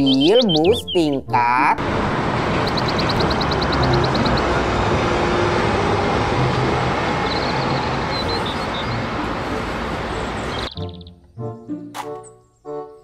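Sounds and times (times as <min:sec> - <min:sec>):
bus engine and road noise: 0:01.6 - 0:11.0.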